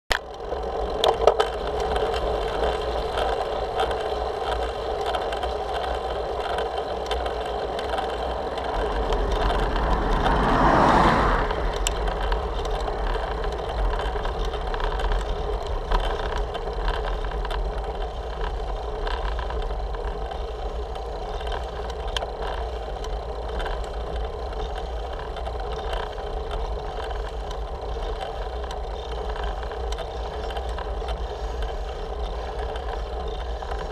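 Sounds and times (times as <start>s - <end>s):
constant hum: 0.1s - 33.9s
wind and road rumble: 0.1s - 33.9s
rush of noise: 8.5s - 13.6s.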